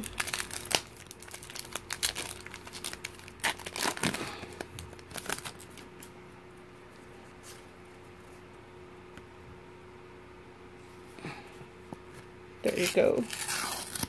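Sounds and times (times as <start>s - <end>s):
foil wrapper crinkling: 0.0s - 6.1s, 12.6s - 14.0s.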